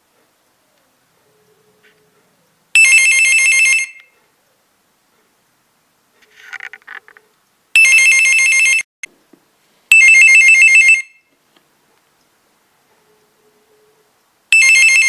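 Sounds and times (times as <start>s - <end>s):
telephone electronic ringer trilling: 14.6s - 15.0s.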